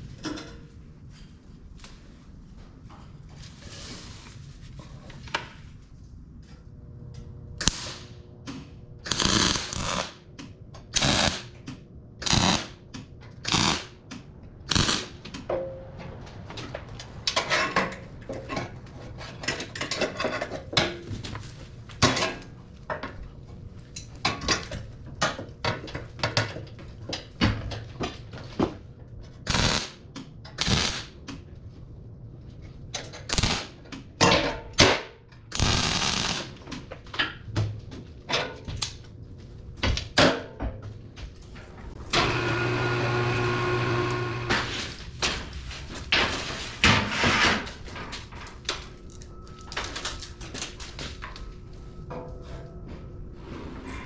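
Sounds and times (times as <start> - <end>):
welding arc crackling bursts: 7.6 - 8.2, 9.0 - 10.2, 11.0 - 11.6, 12.2 - 12.8, 13.4 - 13.9, 14.7 - 15.3, 29.5 - 30.0, 30.6 - 31.1, 33.3 - 33.7, 35.5 - 36.6.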